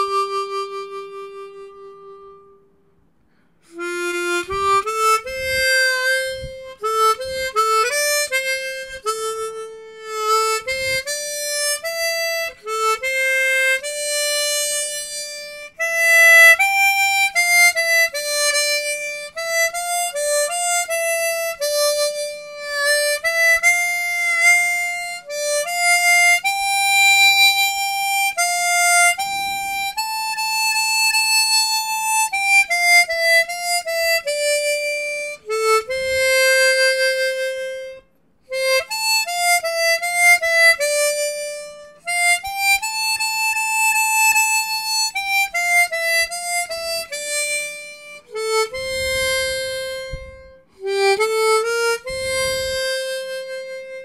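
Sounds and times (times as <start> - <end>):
harmonica melody: 0.0 - 54.0.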